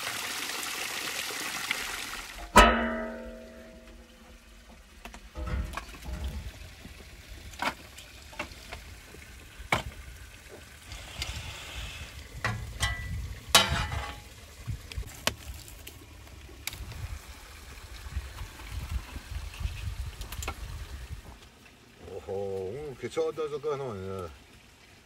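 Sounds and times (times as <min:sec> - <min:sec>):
firewood and tongs knocking: 0:02.5 - 0:04.2, 0:05.0 - 0:06.6, 0:12.4 - 0:14.2.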